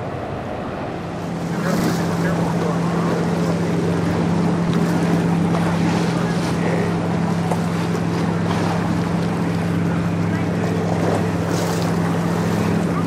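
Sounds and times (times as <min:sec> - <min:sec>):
boat engine drone: 0:00.0 - 0:13.0.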